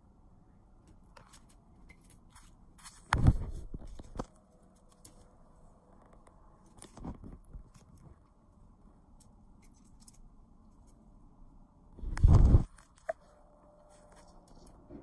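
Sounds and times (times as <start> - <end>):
rustling: 0.9 - 8.5.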